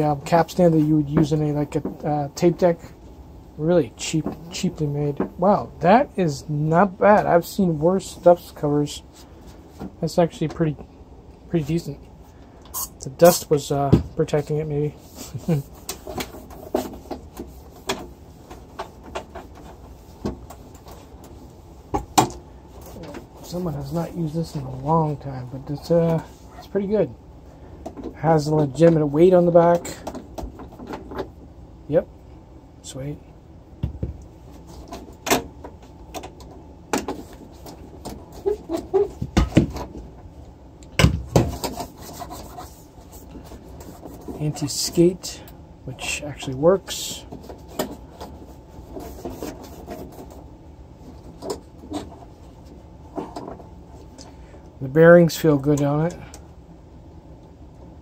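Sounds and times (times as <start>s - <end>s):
cloth wiping turntable: 12.8s - 21.9s, 22.6s - 27.1s
cloth rubbing and wiping: 14.9s - 21.8s, 47.4s - 52.8s.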